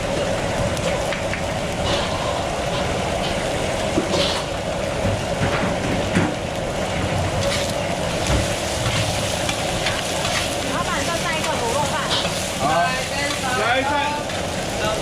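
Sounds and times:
omelettes frying on a griddle: 0.0s - 15.0s
metal spatula scraping griddle: 8.8s - 10.6s.

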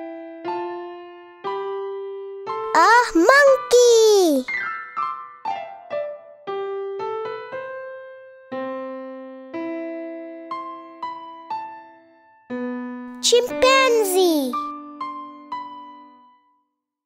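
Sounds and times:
slow piano-like keyboard melody: 4.7s - 13.1s.

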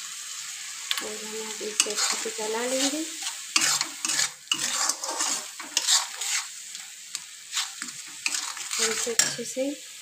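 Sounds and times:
masala sizzling in hot oil: 0.0s - 10.0s
steel spatula scraping pan: 1.7s - 9.5s.

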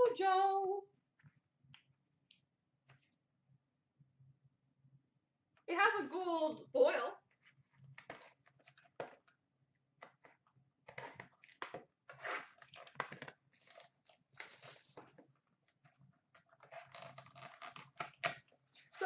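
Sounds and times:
card pack rustling and tearing: 10.9s - 15.0s, 16.5s - 18.4s.

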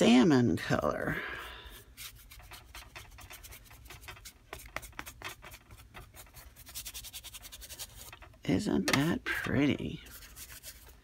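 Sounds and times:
paintbrush scratching on paper: 1.4s - 8.4s, 10.0s - 11.0s.

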